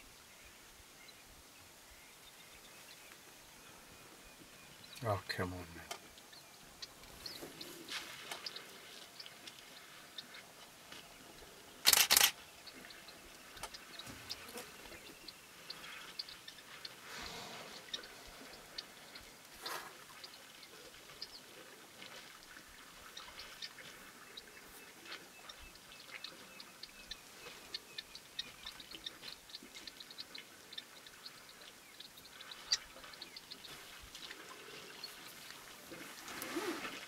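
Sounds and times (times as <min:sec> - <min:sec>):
high ticks and chirps: 0:22.1 - 0:35.5.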